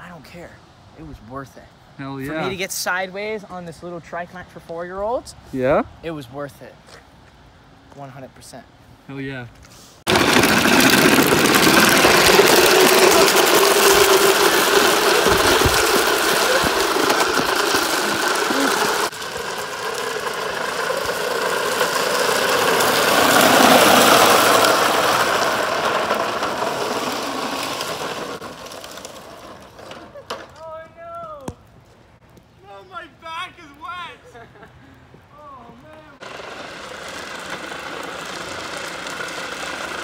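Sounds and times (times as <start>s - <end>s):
plastic wheels rolling on asphalt: 10.1s - 40.0s.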